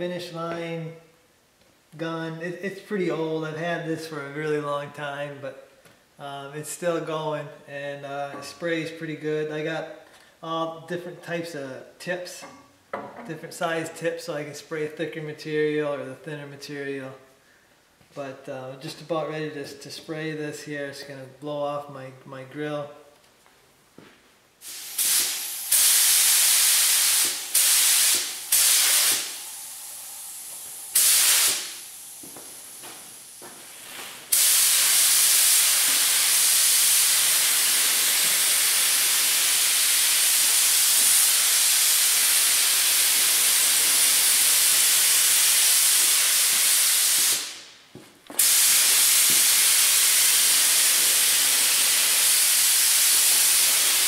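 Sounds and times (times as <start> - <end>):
spray gun air hissing: 24.6 - 54.0.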